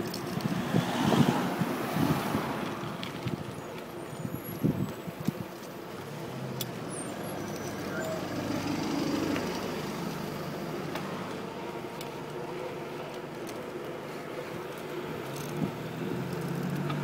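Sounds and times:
road and traffic noise: 0.0s - 17.0s.

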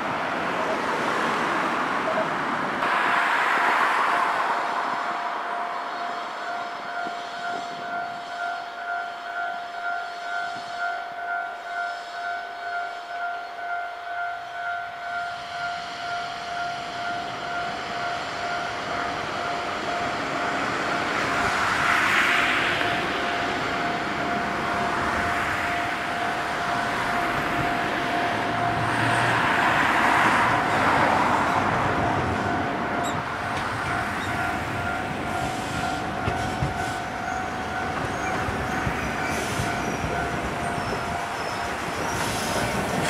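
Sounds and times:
level-crossing alarm dinging: 5.2s - 43.0s
electric train running: 15.1s - 43.0s.

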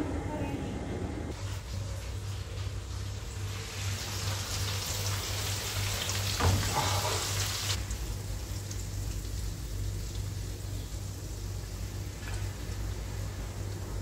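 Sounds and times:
fat sizzling in a roasting pan: 1.4s - 14.0s.

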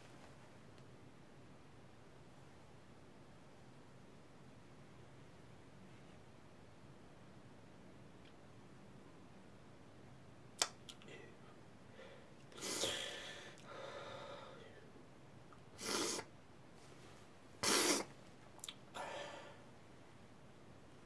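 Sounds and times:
man breathing: 11.1s - 14.9s, 18.9s - 19.8s.

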